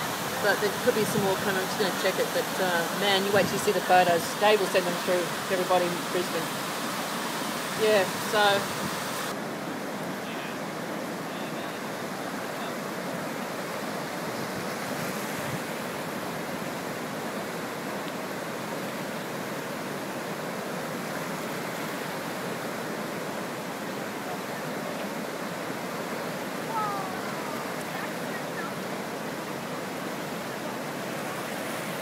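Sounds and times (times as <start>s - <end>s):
floodwater rushing: 0.0s - 32.0s.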